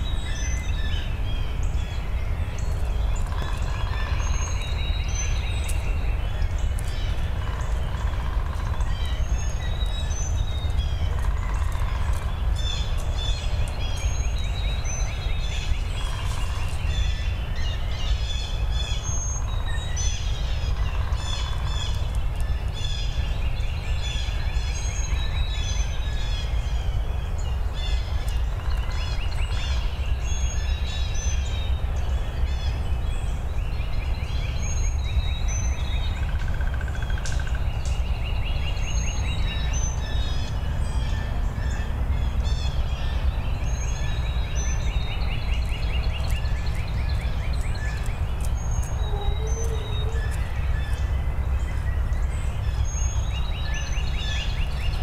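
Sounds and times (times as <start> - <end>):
birds chirping: 0.0 - 55.0
bird trill: 43.8 - 51.1.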